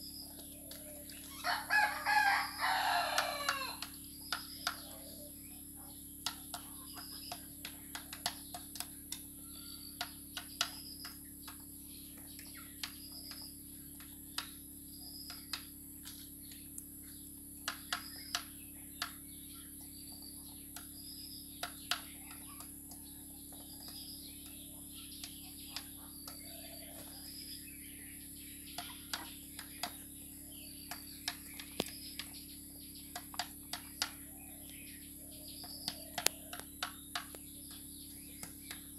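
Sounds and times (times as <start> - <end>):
steady hum: 0.0 - 38.9
chickens chirping: 0.2 - 8.7, 28.6 - 38.8
beaks clicking on bowl: 6.2 - 14.6, 28.6 - 38.9.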